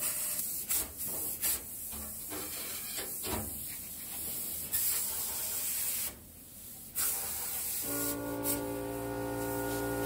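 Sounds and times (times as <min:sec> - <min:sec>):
plasma cutter hissing: 0:07.0 - 0:10.0.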